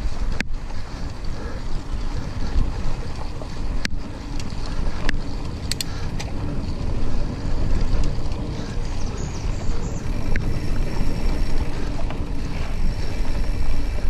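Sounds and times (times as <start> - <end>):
tyres rolling on dirt trail: 0.0 - 14.0
wind buffeting microphone: 0.0 - 14.0
sharp clicks: 3.8 - 6.4.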